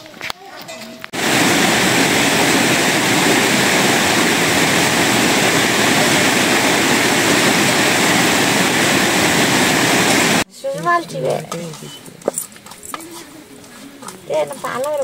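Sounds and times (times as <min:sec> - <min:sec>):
fast-flowing water rushing: 0:01.2 - 0:10.4.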